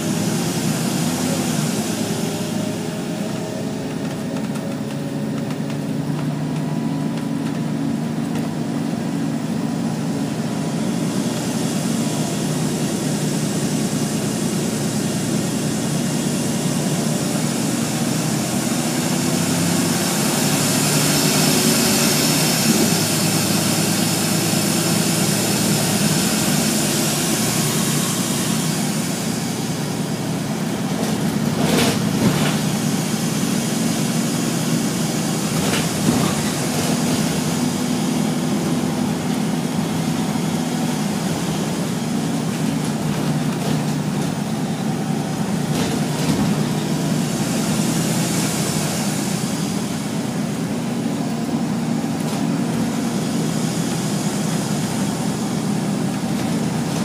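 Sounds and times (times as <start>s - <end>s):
bus engine drone: 0.0s - 57.0s.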